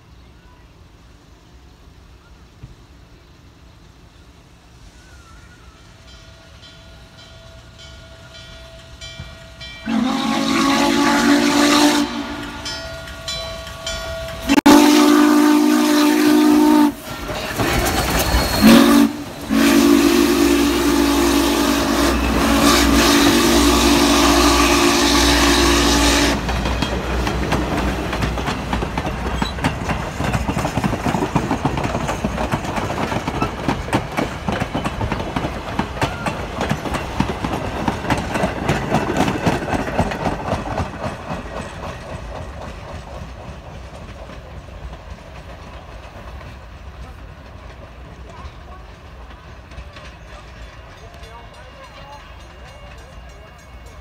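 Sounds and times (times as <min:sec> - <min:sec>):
train wheels rolling: 0:01.4 - 0:54.0
steam locomotive whistle: 0:05.2 - 0:26.5
wheels clicking over rail joints: 0:26.2 - 0:54.0.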